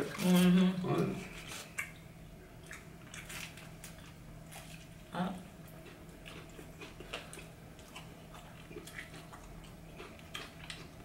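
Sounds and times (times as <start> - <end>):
chewing with wet mouth smacks: 1.6 - 4.9, 5.7 - 11.0.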